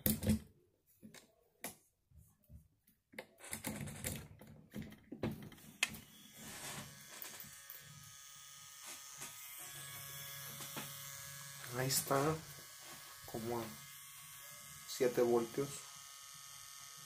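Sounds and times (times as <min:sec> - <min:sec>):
tattoo pen motor running: 0:05.6 - 0:17.0.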